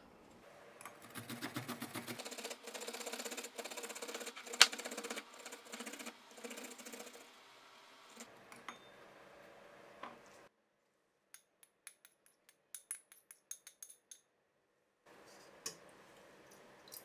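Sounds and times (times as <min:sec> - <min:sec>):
ginger grated on metal grater: 0:01.0 - 0:07.4.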